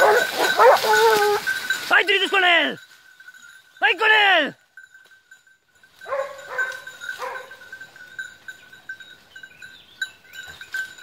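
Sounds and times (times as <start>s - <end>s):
dog yelping: 0.0s - 1.6s, 6.1s - 7.6s.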